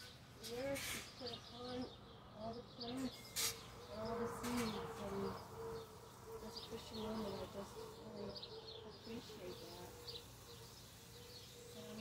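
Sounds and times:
small birds chirping: 0.0 - 12.0
doves cooing: 3.7 - 12.0
garden hose spray hiss: 9.0 - 12.0.

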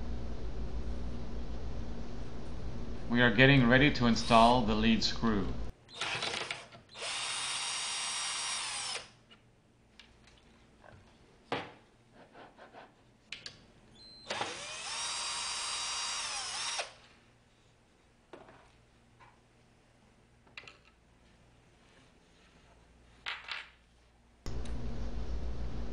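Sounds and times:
cordless drill whining: 5.9 - 9.2, 14.0 - 17.0.

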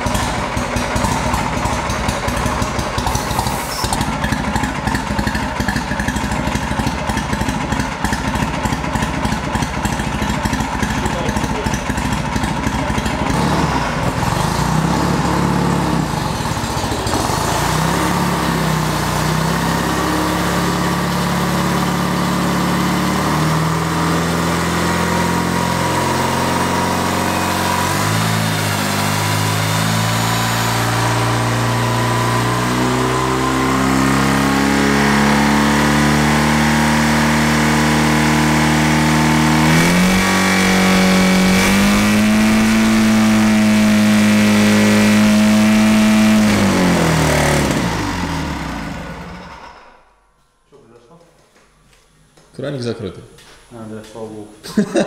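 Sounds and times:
motorcycle engine at high throttle: 0.0 - 50.0.

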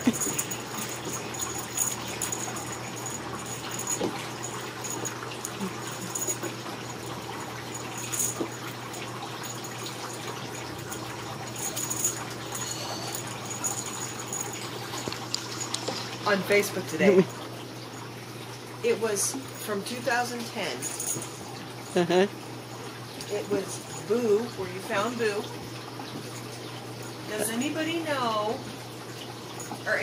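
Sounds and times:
steady hum and hiss: 0.0 - 30.0
kittens scampering on carpet: 10.9 - 16.3.

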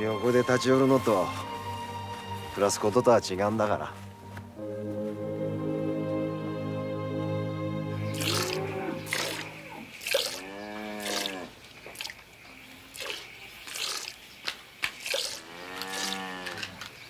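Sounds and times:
milk squirting into a metal pail: 8.1 - 10.4, 11.0 - 12.2, 12.9 - 14.2, 14.9 - 16.7
cow mooing: 8.1 - 11.5, 15.2 - 16.8.

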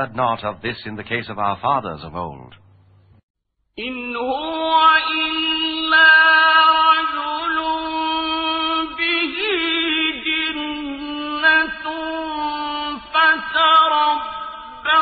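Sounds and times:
person chanting melodically: 3.8 - 15.0.

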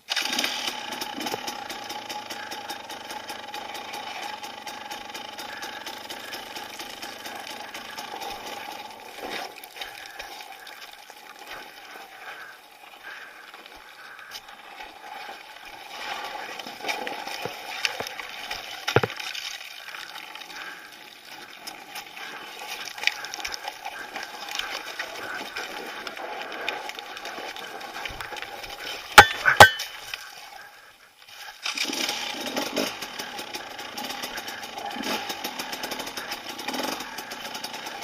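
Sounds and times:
dirt bike engine at low revs: 0.0 - 19.2, 31.6 - 38.0.

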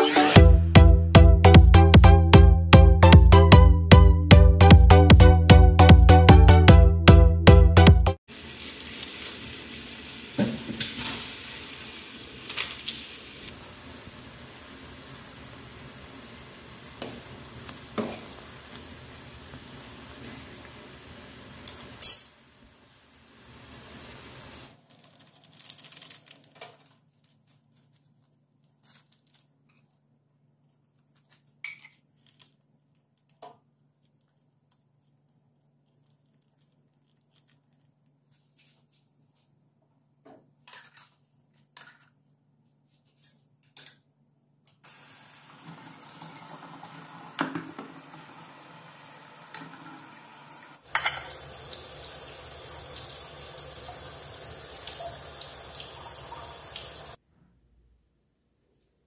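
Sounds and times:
pot boiling hiss: 8.3 - 24.8, 44.9 - 57.2.

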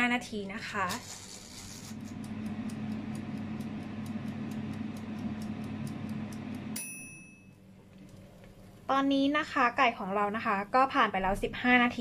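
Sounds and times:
air fryer fan hum: 0.0 - 10.8
timer dial ticking rapidly: 1.1 - 6.8
bell ding: 6.8 - 7.6.

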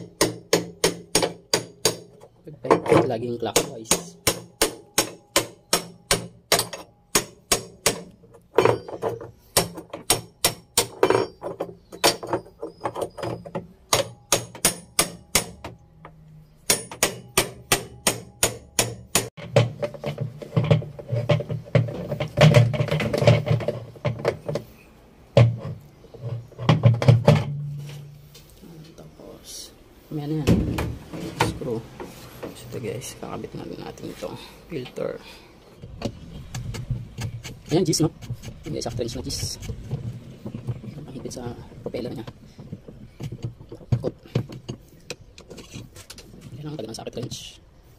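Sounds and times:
hammer striking metal wrench: 3.6 - 9.0, 16.7 - 19.7.

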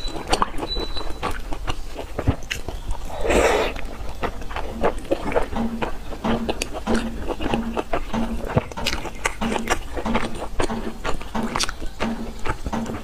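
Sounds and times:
chewing soft food: 0.0 - 13.0
wet mouth clicks and smacks: 0.0 - 13.0
slurp: 2.5 - 5.5.

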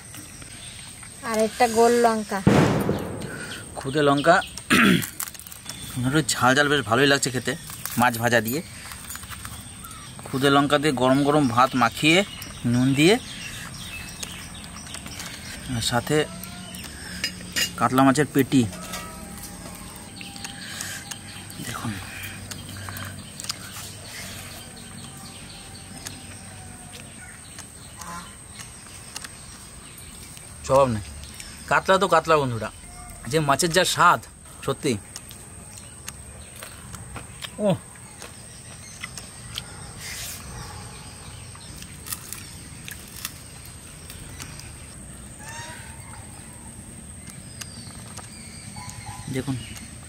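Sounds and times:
birds chirping: 0.0 - 50.0
steady low background noise: 2.3 - 7.6.

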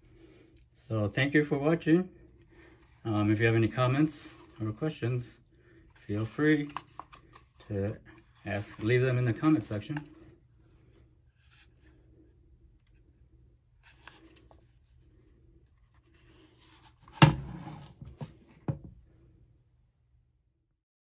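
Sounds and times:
plastic holster rubbing and scraping: 5.9 - 10.2, 15.6 - 18.7.

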